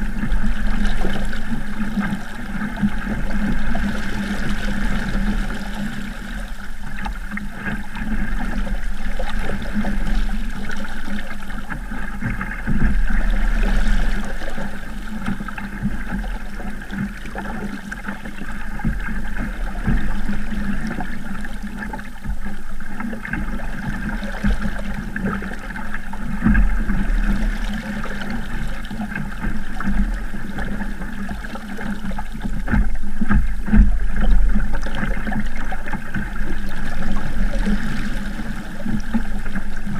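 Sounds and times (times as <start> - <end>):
low rumble: 0.0 - 39.9
water splashing along boat hull: 0.0 - 39.9.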